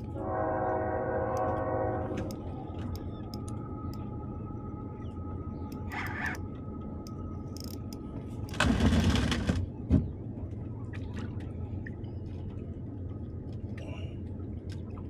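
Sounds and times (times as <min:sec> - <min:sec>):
paddle splashing water: 0:10.8 - 0:12.5.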